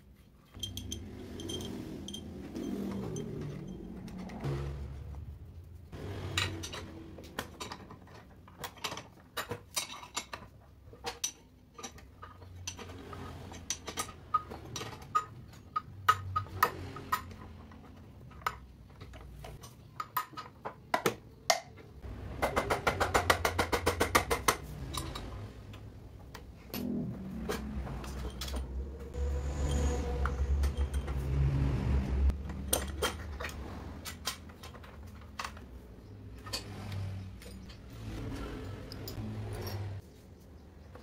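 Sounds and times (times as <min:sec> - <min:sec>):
metal tool clinking: 0:00.4 - 0:04.4.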